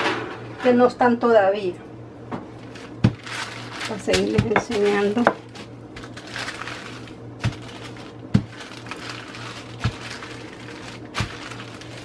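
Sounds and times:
steady low hum: 0:00.0 - 0:12.0
paper rustling: 0:02.6 - 0:12.0.

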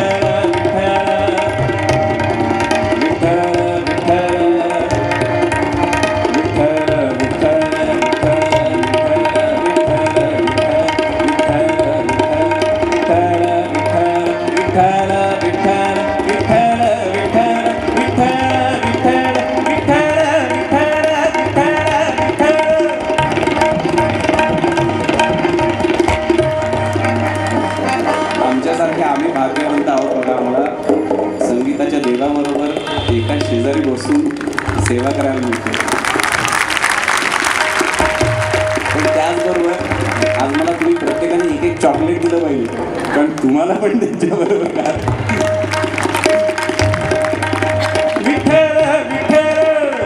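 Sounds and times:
man singing classical vocals: 0:00.0 - 0:02.2, 0:03.0 - 0:05.5, 0:06.3 - 0:24.6, 0:47.8 - 0:50.0
tabla fast strokes: 0:00.0 - 0:50.0.

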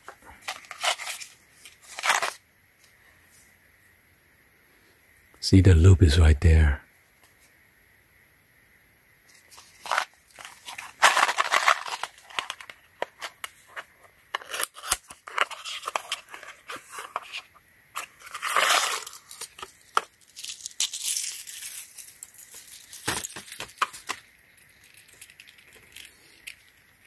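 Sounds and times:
cardboard and paper rustling: 0:00.0 - 0:02.4, 0:09.4 - 0:20.2
metal chain links clinking: 0:18.2 - 0:26.9.

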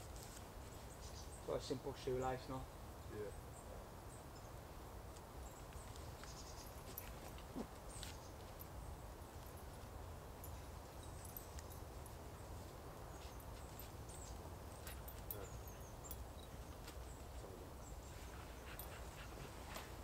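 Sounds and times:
clicks and rustles on forest floor: 0:00.0 - 0:01.4, 0:05.1 - 0:20.0.

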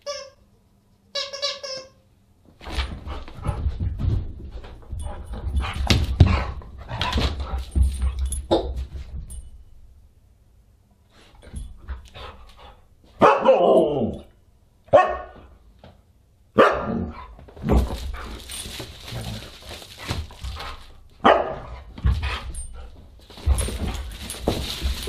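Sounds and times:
dog barking sharply: 0:13.2 - 0:13.6, 0:14.9 - 0:15.4, 0:16.6 - 0:17.0, 0:21.2 - 0:21.7.

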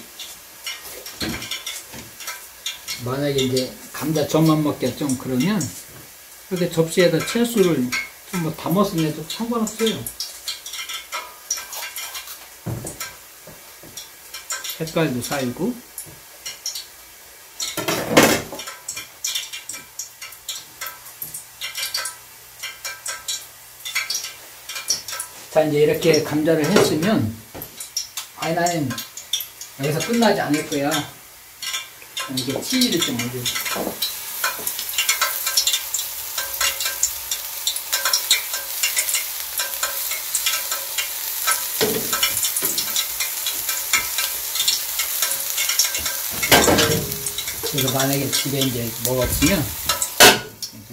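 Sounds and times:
potato pancake sizzling in oil: 0:00.0 - 0:50.9
knock on cutting board: 0:12.6 - 0:13.0.

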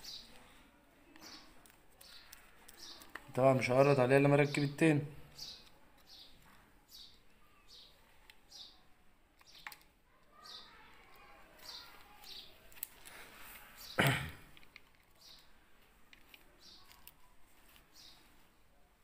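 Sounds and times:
bird chirping faintly: 0:00.0 - 0:14.1, 0:15.0 - 0:19.0
small clicks of parts and tool: 0:01.1 - 0:03.4, 0:09.3 - 0:13.4, 0:14.5 - 0:17.8.

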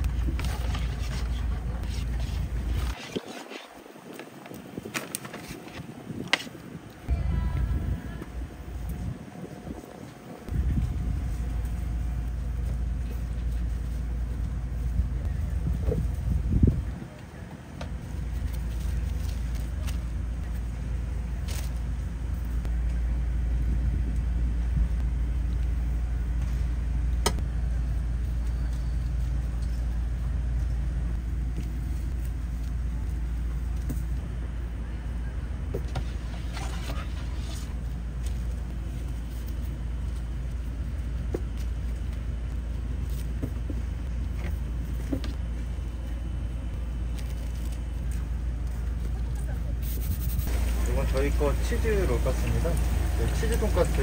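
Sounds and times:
engine humming: 0:50.4 - 0:54.0.

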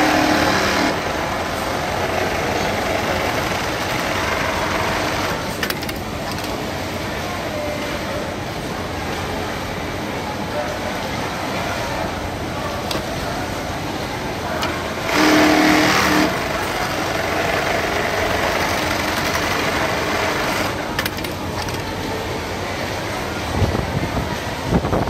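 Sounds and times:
sewing machine stitching: 0:00.0 - 0:01.0, 0:14.6 - 0:21.9
factory machine noise: 0:00.0 - 0:25.0.

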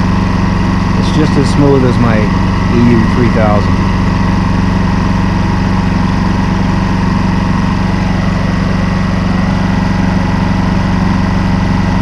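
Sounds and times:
generator engine idling: 0:00.0 - 0:12.0
person talking: 0:01.0 - 0:03.8.

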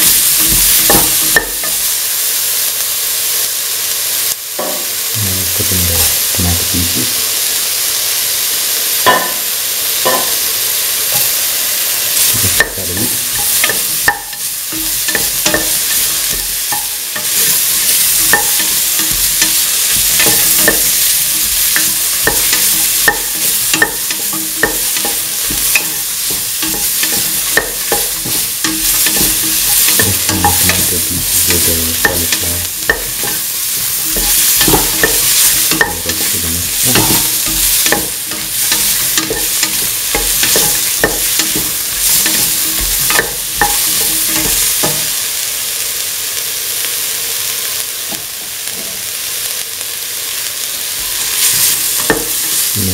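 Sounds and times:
vegetables sizzling in oil: 0:00.0 - 0:52.9
utensil scraping a pan: 0:12.5 - 0:45.1.

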